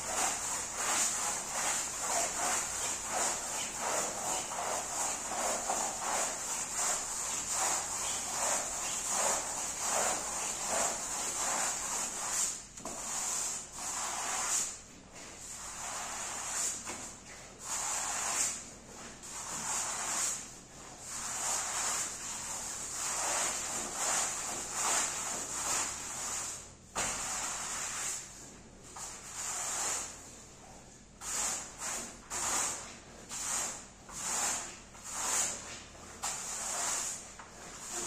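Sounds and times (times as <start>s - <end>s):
rug-cleaning tool swishing on rug: 0.0s - 20.4s.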